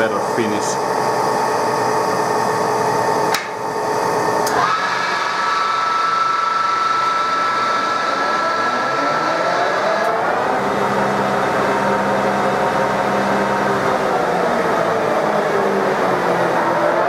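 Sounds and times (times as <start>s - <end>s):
lathe drive whining: 0.0s - 17.0s
lathe running: 0.0s - 17.0s.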